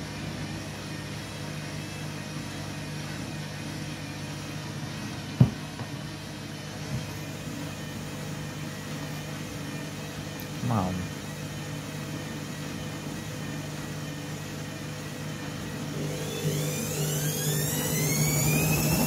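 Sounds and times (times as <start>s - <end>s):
washing machine motor hum: 0.0s - 19.0s
soft knock: 5.4s - 5.6s
washing machine thump: 5.4s - 6.0s.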